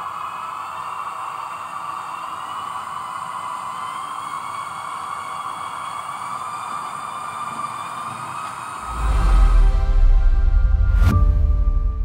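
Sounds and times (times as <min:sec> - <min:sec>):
electric locomotive running hiss: 0:00.0 - 0:09.8
rising electric whine: 0:03.0 - 0:12.0.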